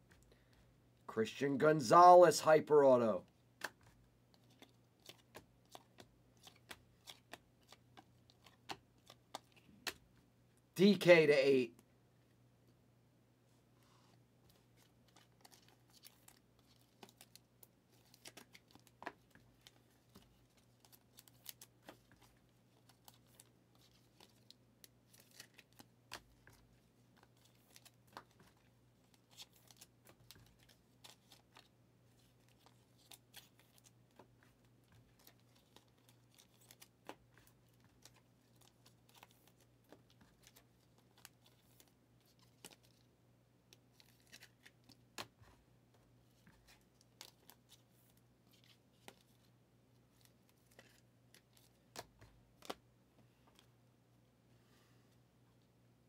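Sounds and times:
cards being handled: 0:03.6 - 0:10.2, 0:14.4 - 0:43.1, 0:43.7 - 0:49.5, 0:50.1 - 0:53.7.

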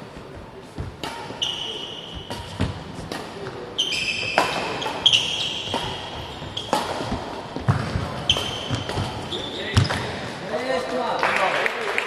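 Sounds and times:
shoes squeaking on court: 0:00.0 - 0:10.3
rackets hitting shuttlecock: 0:00.7 - 0:10.4.

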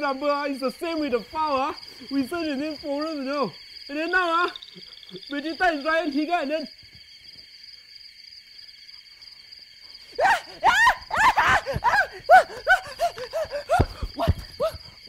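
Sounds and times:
insects chirring: 0:00.0 - 0:15.0
short high whooping cries: 0:10.2 - 0:14.8.

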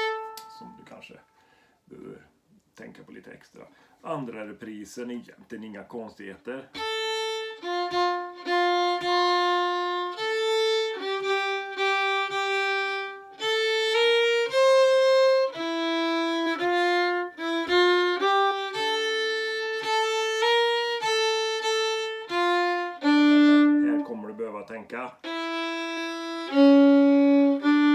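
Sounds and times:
solo violin folk melody: 0:00.0 - 0:01.1, 0:06.7 - 0:24.5, 0:25.1 - 0:27.9.

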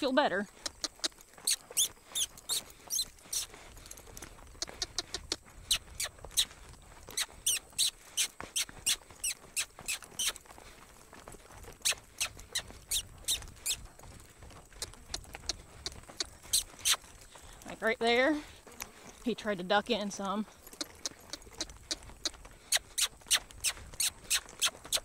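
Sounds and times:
hooves drumming on dirt: 0:00.0 - 0:25.0
short high-pitched squeaks: 0:00.7 - 0:03.5, 0:04.6 - 0:06.5, 0:07.1 - 0:10.4, 0:11.8 - 0:13.8, 0:16.1 - 0:17.1, 0:20.8 - 0:25.0.

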